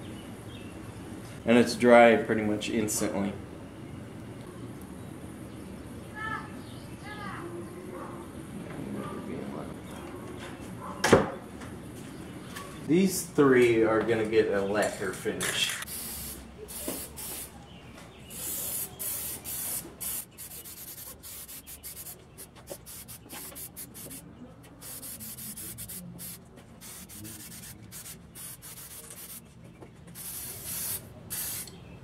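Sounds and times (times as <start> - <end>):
aerosol spray can hissing: 15.9 - 17.6, 18.3 - 24.2, 24.8 - 29.4, 30.2 - 31.8.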